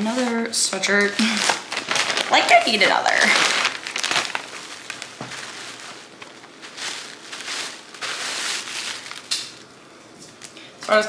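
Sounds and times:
plastic bag crinkling: 0.1 - 10.6
fabric rustling: 1.4 - 9.7.

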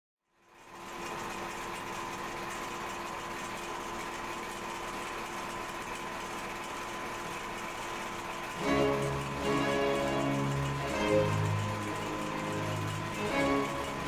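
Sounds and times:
thread-feeding machine humming: 2.1 - 14.0
steady high tone: 8.6 - 14.0.

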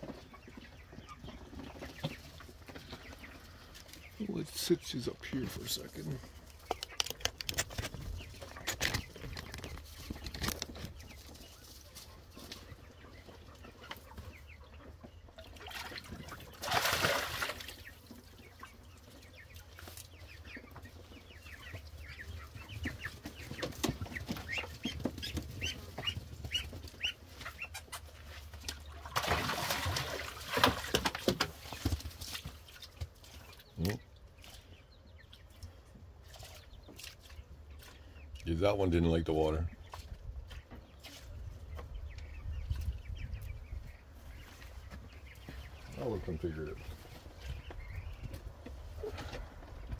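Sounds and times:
poultry calling: 17.4 - 29.8.

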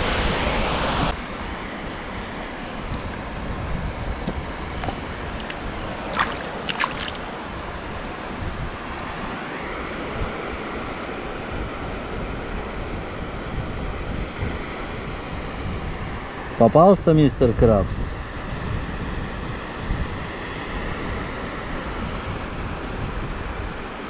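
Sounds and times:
wind buffeting microphone: 0.0 - 9.3, 11.3 - 24.0
surf on rocky shore: 0.0 - 24.0
small water splashes: 4.8 - 7.5.

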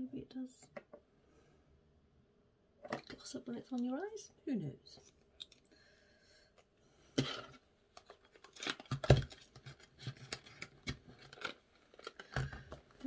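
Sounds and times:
mascara tube and box handled: 7.2 - 13.0.

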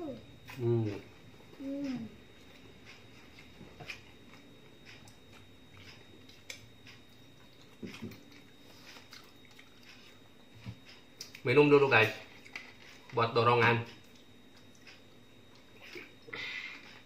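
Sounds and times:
chewing food: 1.8 - 11.5, 12.3 - 13.2.

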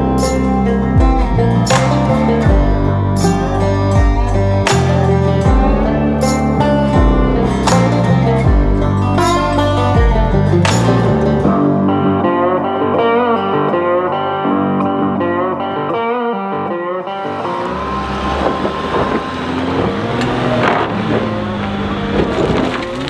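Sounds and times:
guitar music: 0.0 - 23.0
van engine running: 17.1 - 23.0
tyres crunching over gravel: 17.3 - 23.0.

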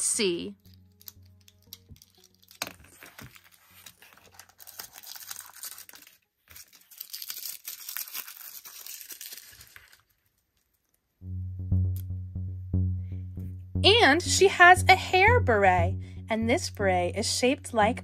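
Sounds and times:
background music: 0.0 - 6.0, 11.2 - 18.0
plastic wrapper crinkling and tearing: 0.6 - 11.0.

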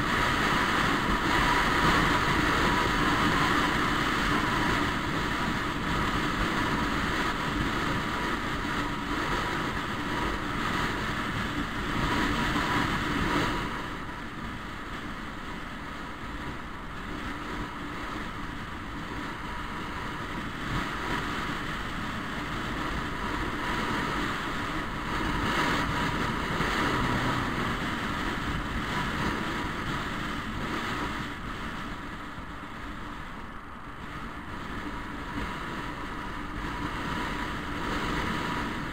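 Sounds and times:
wind rushing over microphone: 0.0 - 38.9
scooter engine running: 18.2 - 31.9.

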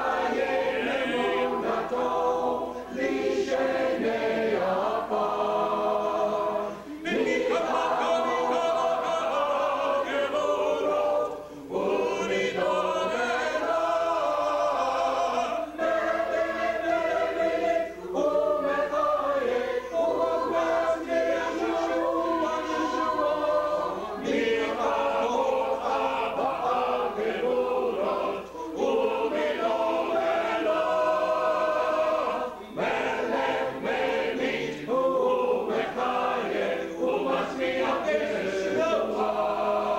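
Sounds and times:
choir singing: 0.0 - 39.9
singers breathing: 6.6 - 7.0, 28.4 - 28.8.

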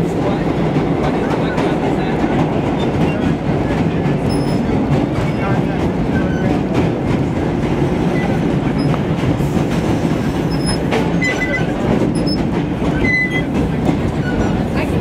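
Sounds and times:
subway wheels rumbling on rail: 0.0 - 15.0
wheels clacking over rail joints: 0.6 - 15.0
high wheel squeals: 10.5 - 13.5.

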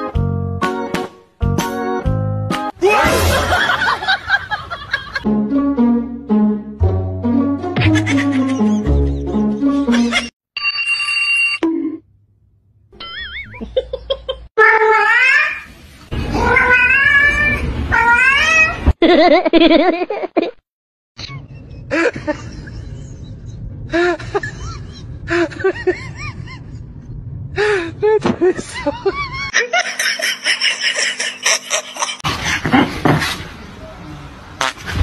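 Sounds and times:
cat meowing: 16.4 - 18.9.

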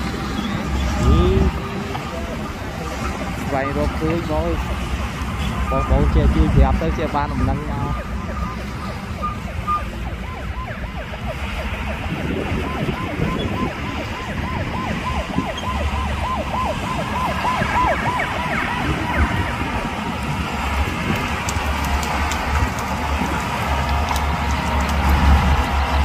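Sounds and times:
heavy equipment engine running: 0.0 - 26.0.

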